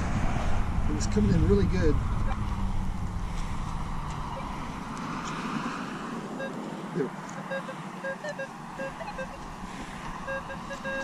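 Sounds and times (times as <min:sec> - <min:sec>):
metal detector beeps: 0:06.4 - 0:06.6, 0:07.3 - 0:11.0.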